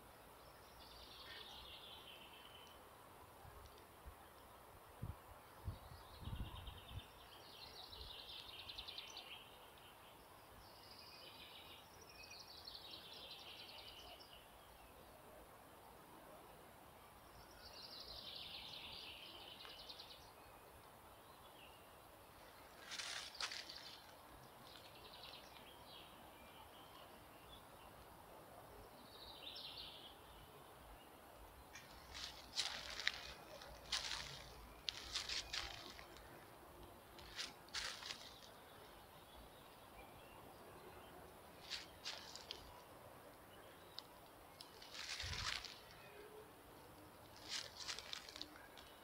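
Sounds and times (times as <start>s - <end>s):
faint steady hiss: 0.0s - 49.0s
small birds chirping: 28.8s - 49.0s.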